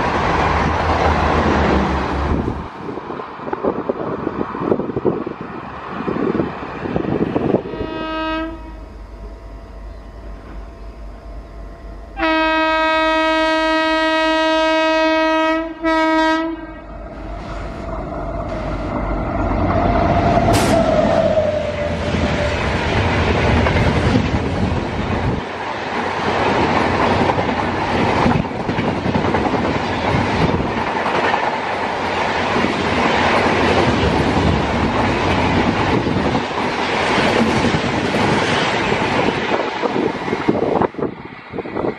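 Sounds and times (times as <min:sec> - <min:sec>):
locomotive horn: 0:07.6 - 0:08.9, 0:12.2 - 0:17.0
train wheels clattering on rails: 0:17.3 - 0:41.9.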